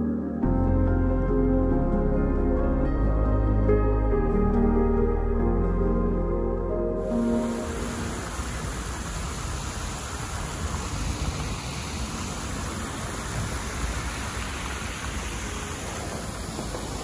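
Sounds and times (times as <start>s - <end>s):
fountain water splashing: 7.0s - 17.0s.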